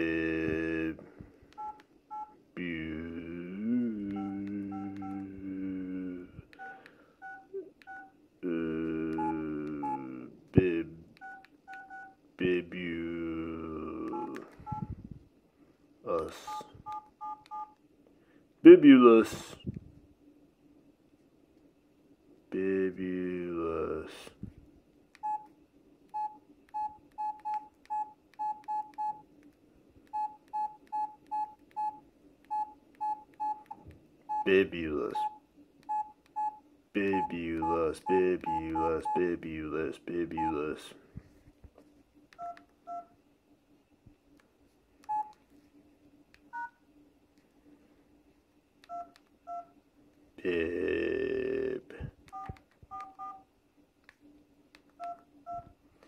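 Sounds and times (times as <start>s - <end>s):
phone keypad beeps: 1.6s - 2.3s, 4.1s - 5.2s, 6.6s - 8.2s, 11.2s - 12.2s, 14.1s - 14.9s, 16.5s - 17.8s, 25.2s - 25.5s, 26.1s - 29.2s, 30.1s - 34.5s, 35.2s - 39.3s, 40.3s - 40.6s, 42.4s - 43.1s, 45.1s - 45.4s, 46.5s - 46.8s, 48.9s - 49.8s, 52.3s - 53.4s, 55.0s - 55.8s.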